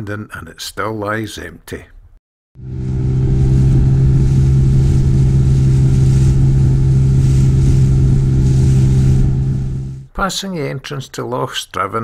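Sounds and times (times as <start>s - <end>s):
outboard motor running: 2.6s - 10.1s
water and wind hiss: 2.6s - 10.1s.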